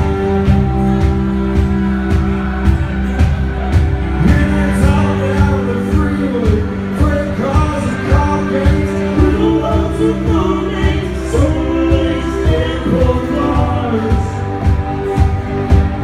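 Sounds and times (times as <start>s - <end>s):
country-rock band playing: 0.0s - 16.0s
person singing: 4.1s - 16.0s.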